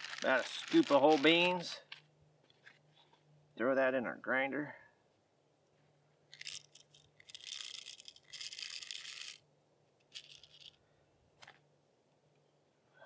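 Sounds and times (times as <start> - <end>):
coffee beans rattling into grinder: 0.0 - 1.7, 6.4 - 9.4, 10.1 - 10.7.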